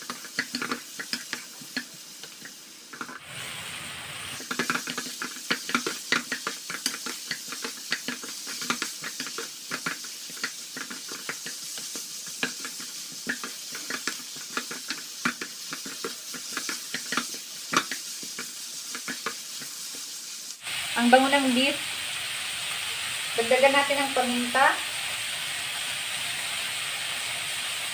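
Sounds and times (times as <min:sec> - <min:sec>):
food sizzling in hot oil: 0:00.0 - 0:27.9.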